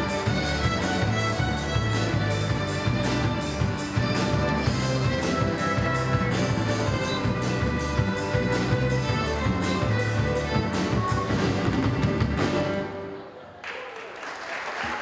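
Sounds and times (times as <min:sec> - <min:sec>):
percussion beat: 0:00.0 - 0:12.5
sustained string notes: 0:00.0 - 0:13.0.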